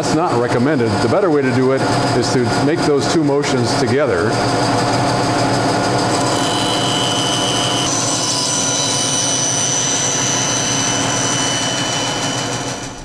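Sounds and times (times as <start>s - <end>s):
band saw cutting plywood: 4.3s - 13.0s.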